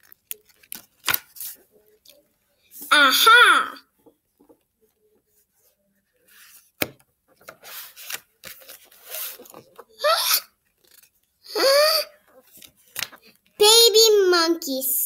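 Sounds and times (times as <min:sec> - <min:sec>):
book pages rustling and turning: 0:00.0 - 0:02.9, 0:04.0 - 0:10.0, 0:10.6 - 0:11.4, 0:12.2 - 0:13.7.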